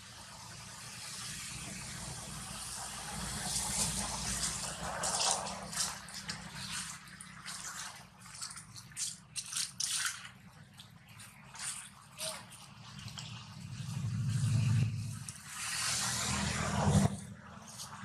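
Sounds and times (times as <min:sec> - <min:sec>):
dry leaves rustling and crackling: 0:03.3 - 0:07.7.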